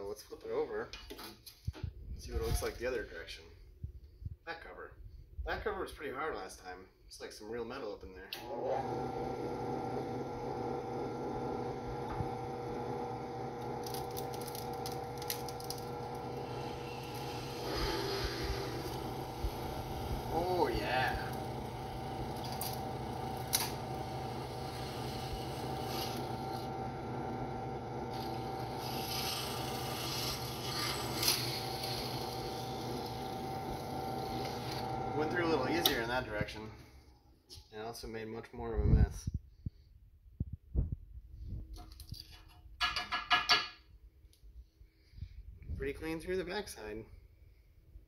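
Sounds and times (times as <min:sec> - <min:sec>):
drill press motor hum: 0:08.4 - 0:36.2
drill bit cutting metal: 0:12.8 - 0:36.2.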